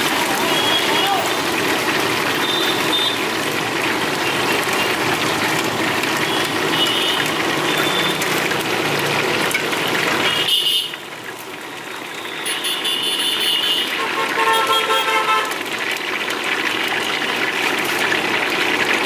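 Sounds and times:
road traffic noise: 0.0s - 19.0s.

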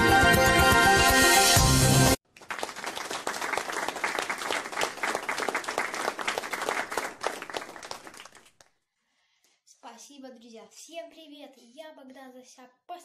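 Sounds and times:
audience applauding: 2.2s - 8.7s.

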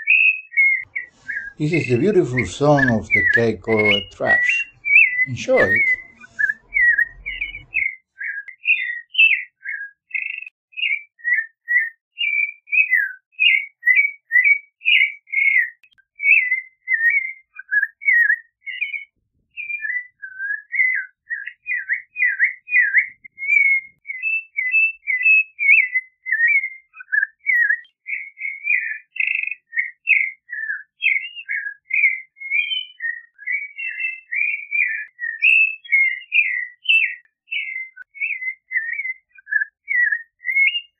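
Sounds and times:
thrush singing: 1.4s - 7.8s.

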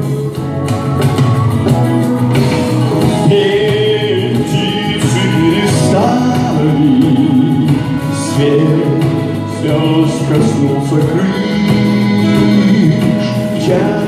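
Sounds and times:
congas played by hand: 0.0s - 14.0s
keyboard accompaniment: 0.0s - 14.0s
man singing held notes: 3.2s - 14.0s.

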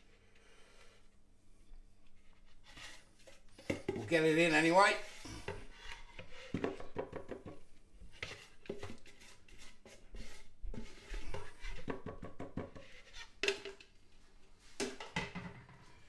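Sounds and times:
spatula scraping plastic bowl: 2.4s - 7.0s, 8.0s - 13.4s
spatula knocking: 6.5s - 7.6s, 10.8s - 13.7s.

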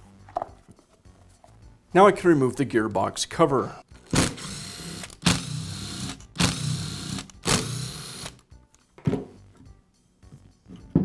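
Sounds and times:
cordless drill running: 4.1s - 8.4s.

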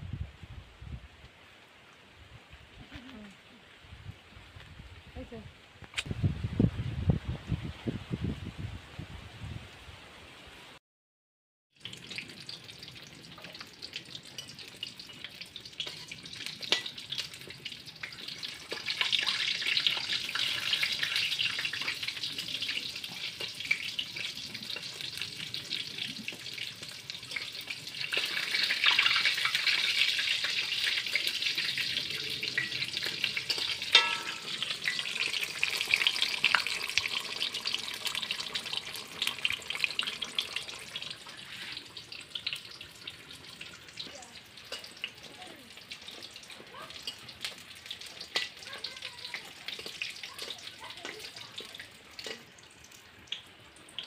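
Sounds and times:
deep-frying sizzle: 11.7s - 54.0s.

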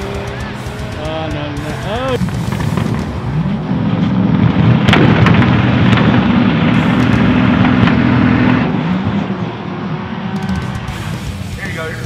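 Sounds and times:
sharp cracks: 0.0s - 9.0s, 10.2s - 12.0s
car engines revving high: 0.0s - 12.0s.

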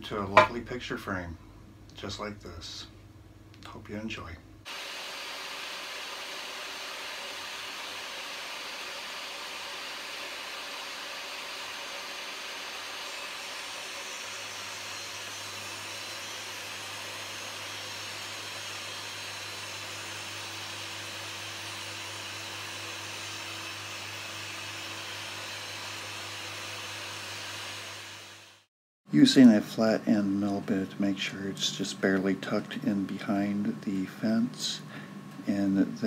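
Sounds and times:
blade cutting wood hum: 4.7s - 28.7s
table saw running: 4.7s - 28.7s.

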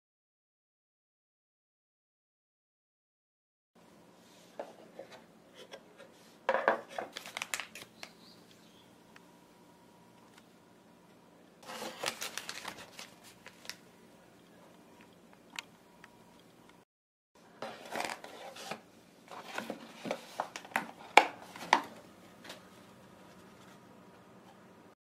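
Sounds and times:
paper wrappers crinkling: 6.9s - 8.3s, 11.6s - 13.9s.

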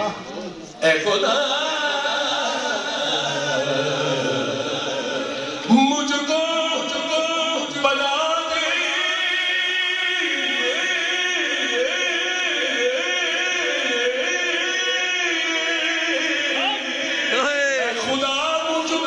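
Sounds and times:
man singing devotional song: 0.8s - 19.0s.

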